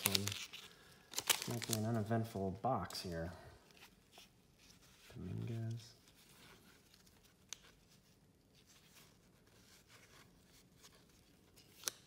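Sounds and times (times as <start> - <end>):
trading cards rustling: 0.0 - 8.0.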